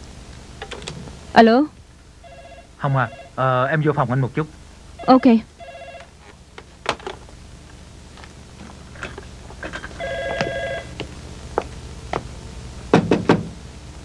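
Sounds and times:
electronic telephone ring: 0:02.2 - 0:03.4, 0:05.0 - 0:06.1, 0:10.0 - 0:11.0.

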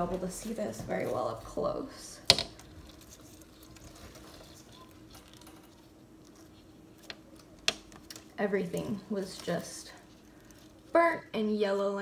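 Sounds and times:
faint steady hum: 0:00.0 - 0:12.0
leaves rustling by hand: 0:00.0 - 0:12.0.

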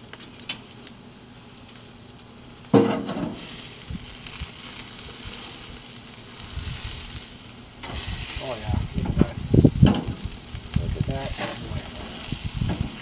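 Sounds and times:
fat dripping hiss on coals: 0:00.0 - 0:13.0
meat sizzling on grill: 0:00.0 - 0:13.0.

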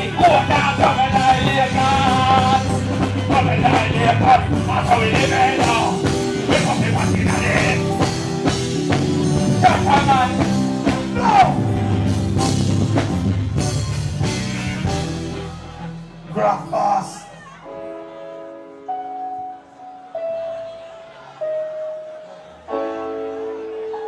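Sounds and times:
live band with drums and guitar: 0:00.0 - 0:17.8.

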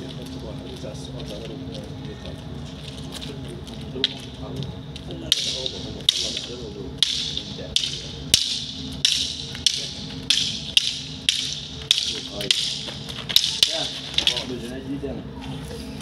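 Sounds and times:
wooden sticks clacking: 0:03.3 - 0:04.4, 0:05.0 - 0:14.7.

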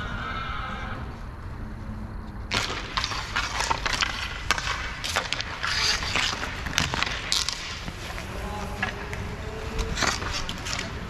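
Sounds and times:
hockey sticks and puck clacking: 0:02.3 - 0:11.0.

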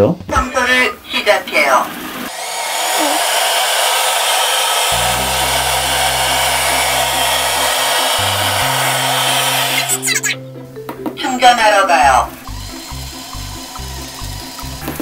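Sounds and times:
robot vacuum suction fan: 0:01.9 - 0:10.2, 0:12.4 - 0:15.0.

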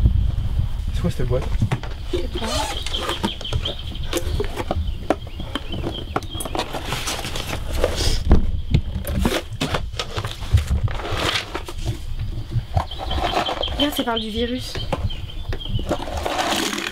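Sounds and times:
papers and fabric rustling: 0:05.5 - 0:08.2.

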